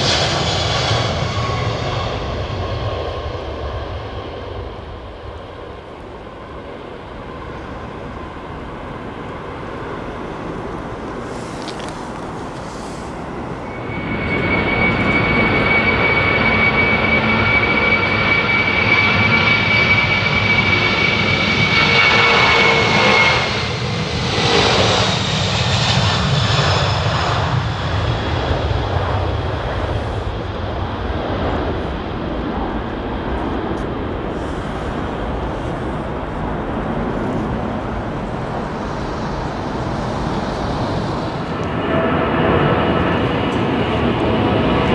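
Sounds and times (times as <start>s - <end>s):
jet engines at takeoff: 0.0s - 44.9s
high fan whine: 29.5s - 44.9s.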